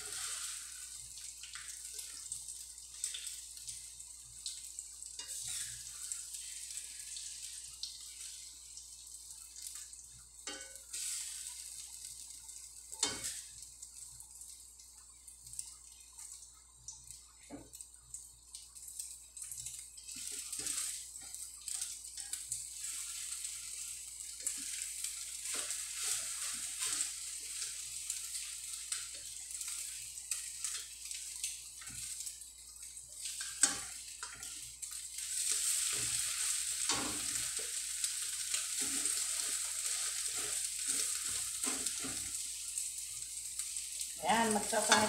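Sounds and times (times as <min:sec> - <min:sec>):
eggs sizzling in hot oil: 0:00.0 - 0:45.0
spatula scraping and tapping pan: 0:05.2 - 0:06.6, 0:10.4 - 0:11.7, 0:12.9 - 0:13.5, 0:19.4 - 0:32.3, 0:33.2 - 0:42.4, 0:44.5 - 0:45.0.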